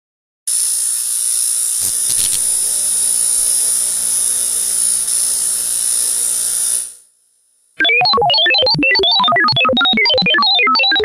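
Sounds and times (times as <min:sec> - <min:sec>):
electrical buzzing hiss: 0:00.6 - 0:07.8
electrical crackles: 0:01.8 - 0:07.0.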